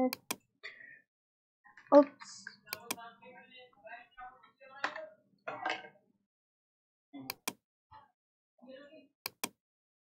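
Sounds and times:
computer mouse and keyboard clicks: 2.7 - 3.0, 7.3 - 7.6, 9.3 - 9.6.

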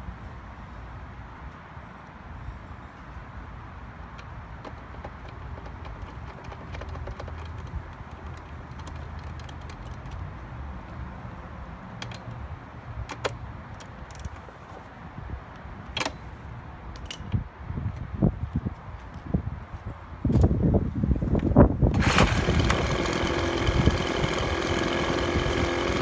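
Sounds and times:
leaf blower engine idling: 22.0 - 26.0.

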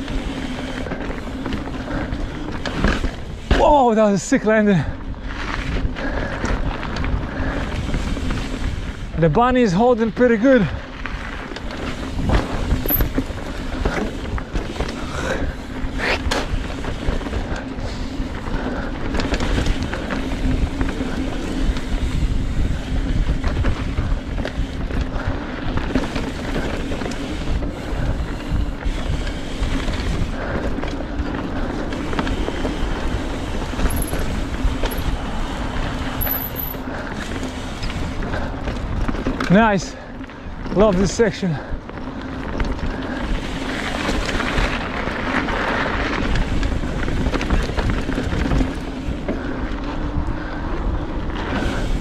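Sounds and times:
bike knocks and rattles: 0.0 - 4.0, 10.5 - 39.7
bike tyres rumbling on dirt: 0.0 - 52.0.

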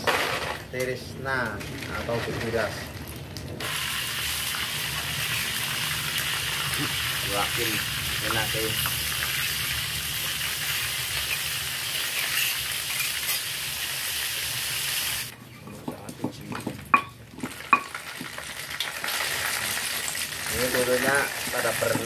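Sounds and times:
paste sizzling in hot oil: 3.6 - 15.3, 17.4 - 22.0.

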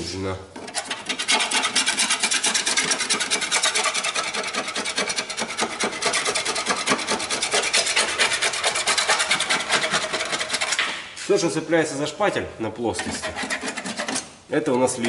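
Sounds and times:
blade scraping body filler: 0.6 - 11.0, 13.0 - 14.3.

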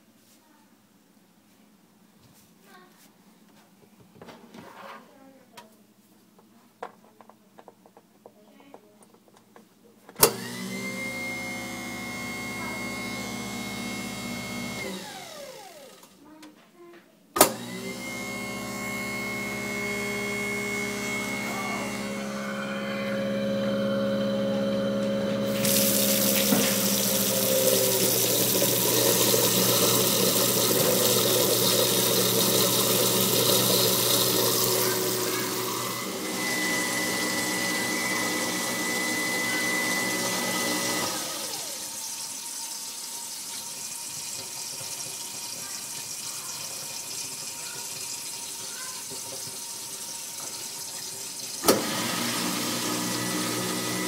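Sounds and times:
garbage disposal motor humming: 10.2 - 16.2, 17.4 - 54.0
tap water pouring down drain: 25.5 - 35.7, 42.1 - 51.8.

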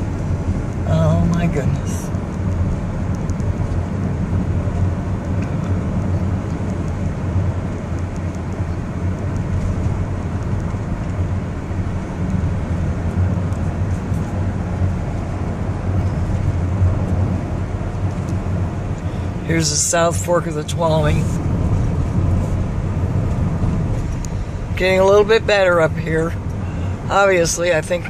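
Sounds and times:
car road and engine noise: 0.0 - 28.0.

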